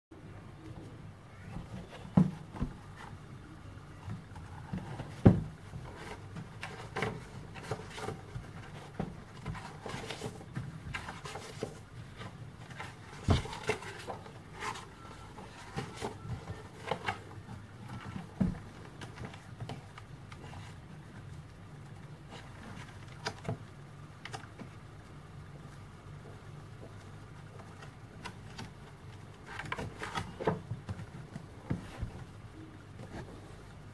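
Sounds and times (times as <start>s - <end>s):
low steady hum: 0.1s - 33.9s
paper pages rustling: 4.2s - 23.6s, 26.8s - 33.7s.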